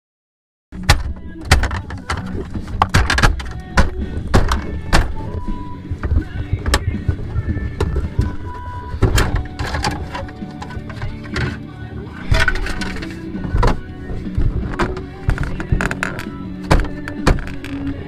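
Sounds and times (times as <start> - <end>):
plastic trim panels clicking and snapping: 0.8 - 5.2, 9.0 - 11.6, 14.6 - 18.0.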